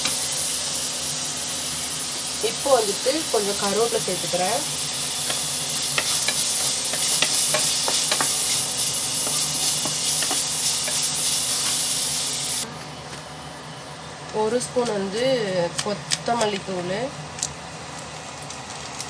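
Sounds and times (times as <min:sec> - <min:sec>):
onions sizzling: 0:00.0 - 0:12.7
spatula scraping and tapping: 0:05.2 - 0:08.6, 0:09.2 - 0:11.8.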